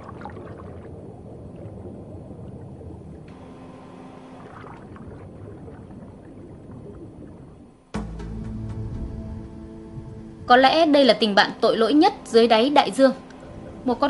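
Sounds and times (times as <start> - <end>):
faint bubbling crackles: 0.0 - 8.0
underwater water wash: 0.0 - 14.0.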